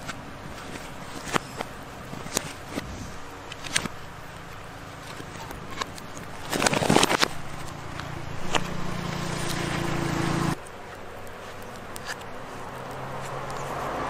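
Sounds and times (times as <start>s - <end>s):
coconut husks clattering: 0.0s - 14.0s
low motor hum: 0.0s - 14.0s.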